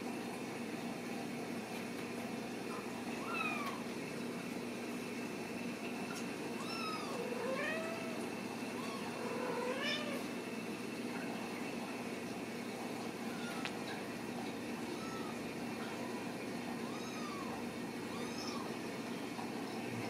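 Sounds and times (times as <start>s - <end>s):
steady background hum: 0.0s - 20.0s
cats meowing: 3.1s - 3.9s, 6.6s - 10.3s, 13.1s - 14.0s, 14.8s - 18.9s.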